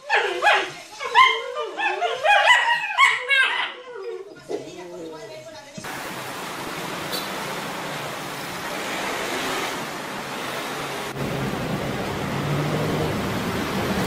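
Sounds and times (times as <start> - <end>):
traffic rushing hiss: 5.9 - 14.0
motorbike and car engines humming: 7.0 - 14.0.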